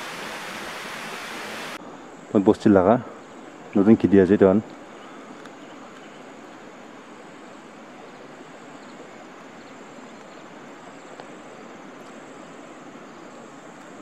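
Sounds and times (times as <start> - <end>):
outdoor rushing hiss: 0.0 - 5.4.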